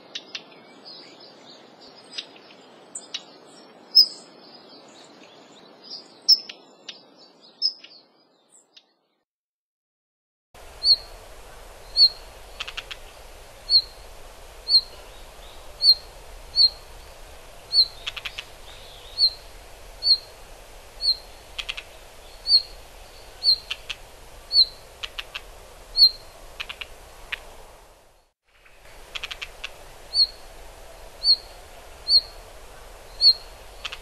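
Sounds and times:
bird whistled call: 0:15.8 - 0:16.8, 0:17.7 - 0:19.4, 0:20.0 - 0:20.3, 0:22.4 - 0:22.8, 0:26.0 - 0:26.2, 0:30.1 - 0:30.4, 0:31.2 - 0:31.5, 0:33.2 - 0:34.0.

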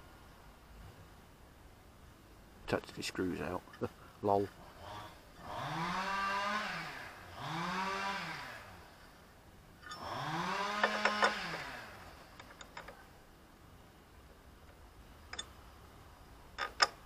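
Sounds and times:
small electric motor humming: 0:09.9 - 0:12.7.

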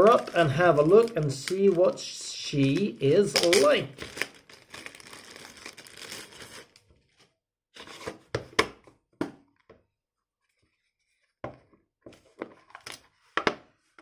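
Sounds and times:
plastic wrap crinkling: 0:00.0 - 0:07.1.

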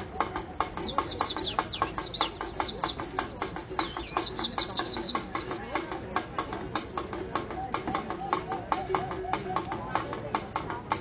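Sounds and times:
sharp taps: 0:00.0 - 0:11.0
high bird-like whistles: 0:00.4 - 0:06.0.

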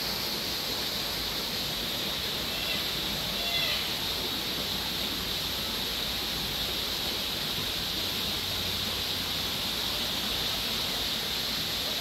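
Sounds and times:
outdoor ambient hiss: 0:00.0 - 0:12.0.

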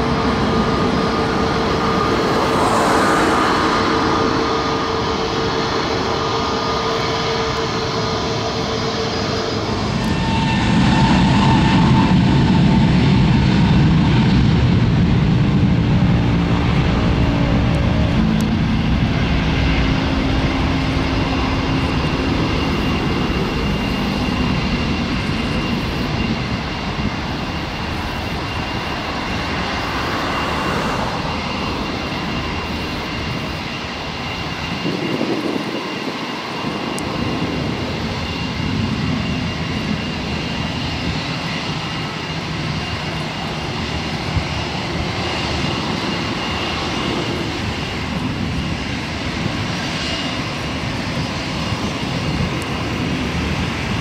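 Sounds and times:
jet engines rumbling and whining: 0:00.0 - 0:54.0.

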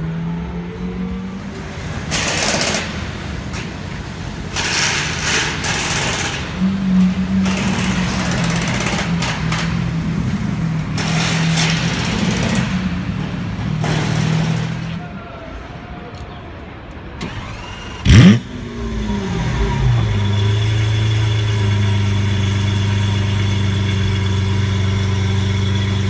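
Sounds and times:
car engine at low revs: 0:18.0 - 0:26.0.

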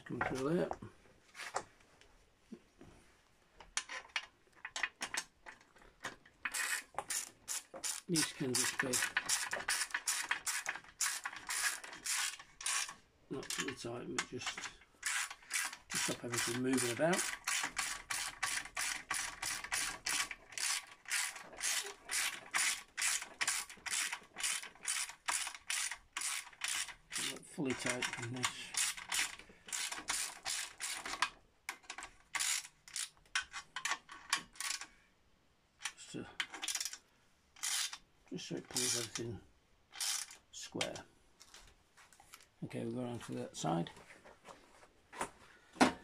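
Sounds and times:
hand ratchet clicking: 0:06.4 - 0:34.9, 0:35.8 - 0:37.0, 0:37.6 - 0:38.0, 0:38.7 - 0:39.2, 0:39.9 - 0:40.4.

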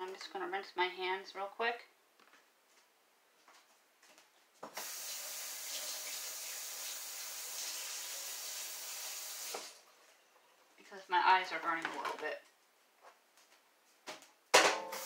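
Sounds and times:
faucet running: 0:04.7 - 0:09.8.

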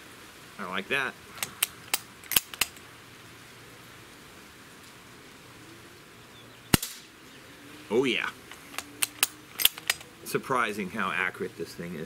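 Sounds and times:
rifle bolt clicking metallically: 0:01.4 - 0:02.8, 0:08.4 - 0:10.1.

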